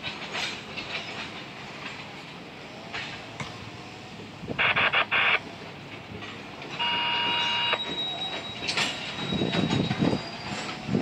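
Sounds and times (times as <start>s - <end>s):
train wheels squealing: 0.0s - 2.2s, 6.4s - 11.0s
train cars rolling past: 0.0s - 11.0s.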